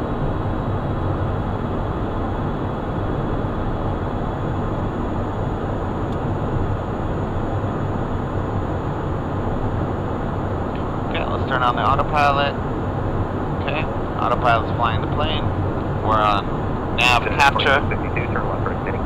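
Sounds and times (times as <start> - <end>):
faint high steady tones: 15.2 - 19.0.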